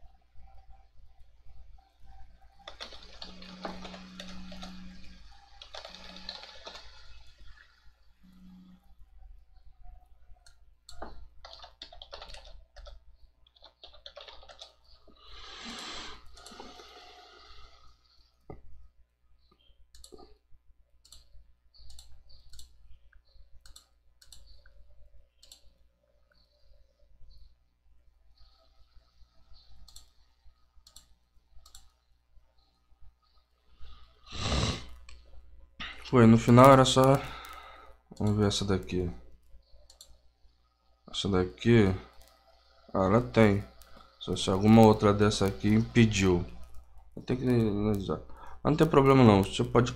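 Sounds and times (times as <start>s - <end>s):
faint low hum: 0.0s - 49.9s
computer mouse clicking: 1.2s - 7.7s, 10.4s - 18.7s, 19.5s - 20.4s, 21.0s - 26.6s, 29.5s - 32.1s, 39.4s - 40.3s, 42.1s - 48.1s
keyboard typing: 2.0s - 7.7s, 10.4s - 17.2s, 19.9s - 20.4s, 21.0s - 26.5s, 29.6s - 32.0s, 35.9s - 40.2s, 41.8s - 49.9s.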